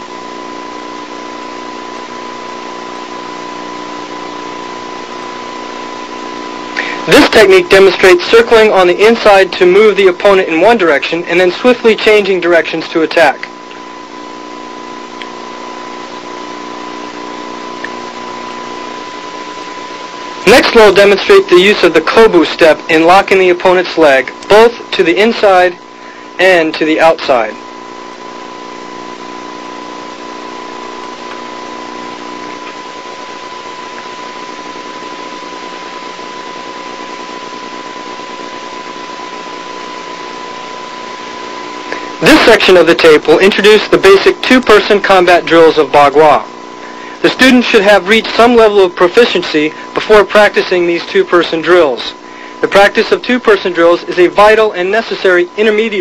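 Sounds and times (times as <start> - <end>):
videotape hiss: 0.0 - 56.0
low hum: 13.3 - 49.0.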